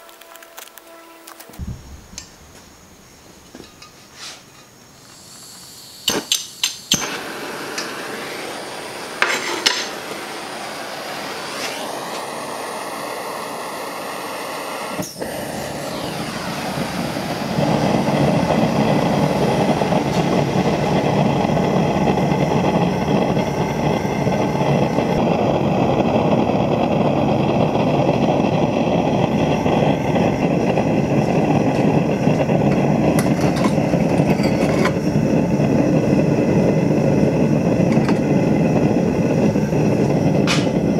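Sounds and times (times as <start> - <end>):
gas burner roar: 0.0 - 40.9
igniter clicks: 4.6 - 8.0
gas burner lighting pop: 5.0 - 10.3, 14.8 - 21.0, 30.6 - 35.8, 37.8 - 38.6, 39.3 - 40.9.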